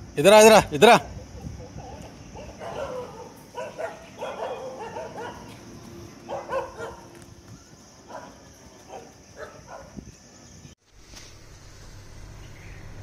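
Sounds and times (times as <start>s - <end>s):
dog barking: 1.7s - 5.6s, 6.2s - 7.1s, 8.1s - 10.0s.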